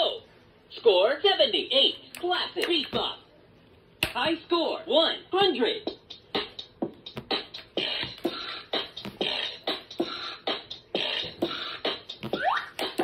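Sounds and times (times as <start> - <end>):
electronic drum machine beat: 5.8 - 13.0.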